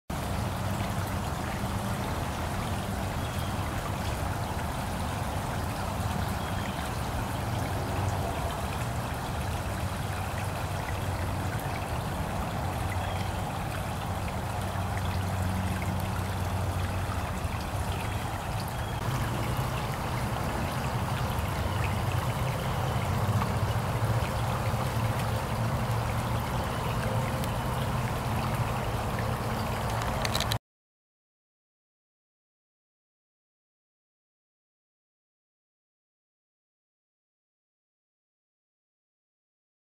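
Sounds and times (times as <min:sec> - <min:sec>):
running water trickling: 0:00.1 - 0:30.6.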